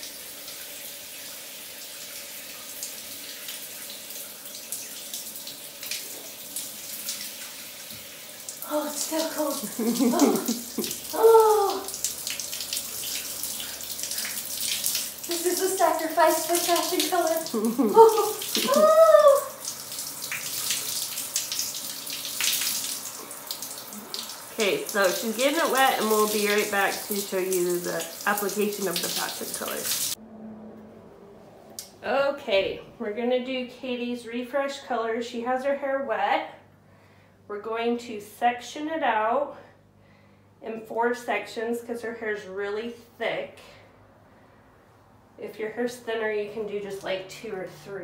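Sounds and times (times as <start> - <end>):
shower water spraying: 0.0 - 30.2
water splashes: 2.1 - 30.2
short high cry: 18.6 - 19.6.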